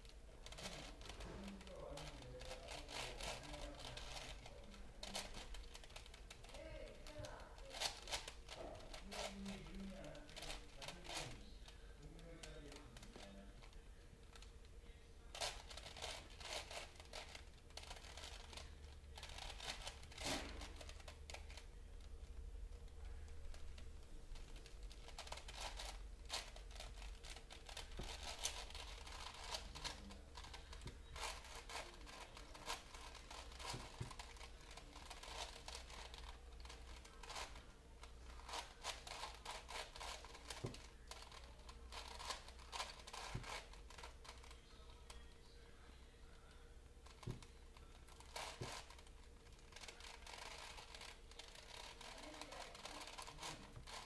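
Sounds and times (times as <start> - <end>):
puzzle cube layers clacking: 24.4 - 37.6, 38.4 - 44.5.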